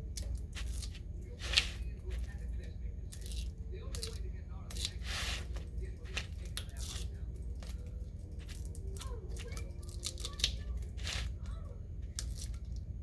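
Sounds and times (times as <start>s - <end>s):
vinyl crackling: 0.0s - 2.6s
weeding tool scratching vinyl: 0.6s - 1.8s, 4.9s - 5.6s.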